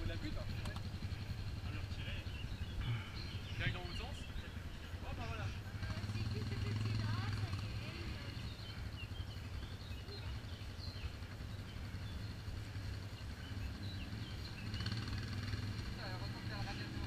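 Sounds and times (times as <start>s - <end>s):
birds chirping: 0.0s - 17.0s
engine idling: 0.0s - 17.0s.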